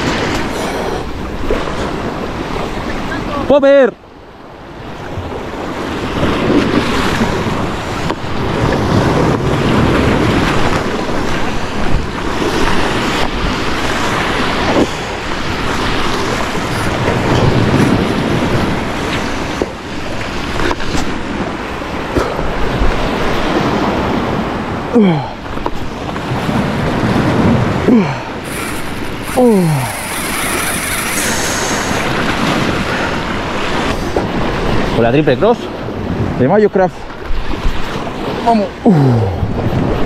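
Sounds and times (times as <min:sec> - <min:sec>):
wind buffeting microphone: 0:04.2 - 0:24.9, 0:25.5 - 0:40.0
sea surf washing in: 0:25.7 - 0:40.0.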